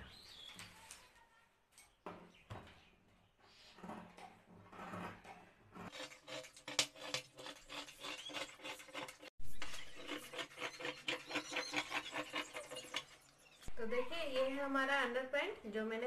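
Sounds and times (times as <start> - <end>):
shears cutting fabric: 5.9 - 13.0.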